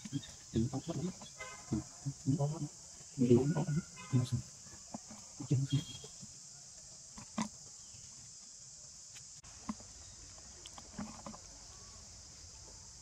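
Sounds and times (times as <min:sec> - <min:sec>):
high-pitched insect drone: 0:00.0 - 0:09.4.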